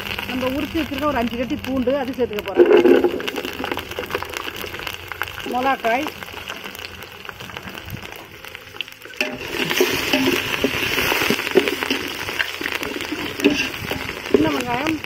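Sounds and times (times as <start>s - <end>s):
spices sizzling in hot oil: 0.0s - 15.0s
metal spoon scraping a pot: 9.2s - 14.6s.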